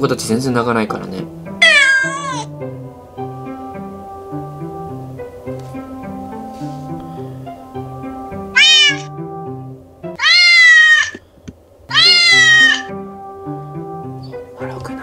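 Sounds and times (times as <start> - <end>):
background music with plucked notes: 0.0 - 10.9, 11.9 - 15.0
recorded cat meows: 1.6 - 2.5, 8.6 - 9.2, 10.1 - 11.2, 11.9 - 13.0.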